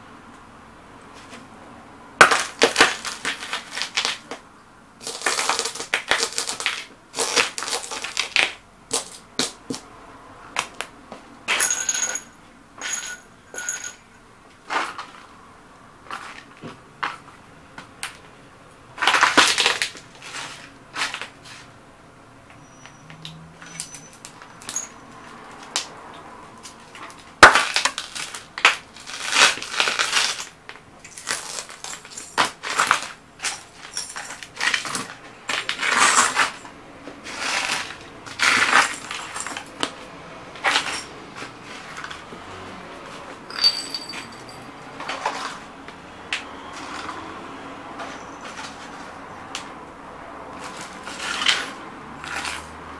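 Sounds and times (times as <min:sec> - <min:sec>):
glass shattering underfoot: 0:43.5 - 0:44.7.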